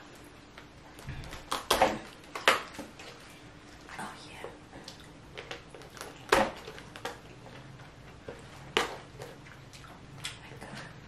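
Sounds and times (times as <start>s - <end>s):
crab shell cracking: 5.3s - 7.2s.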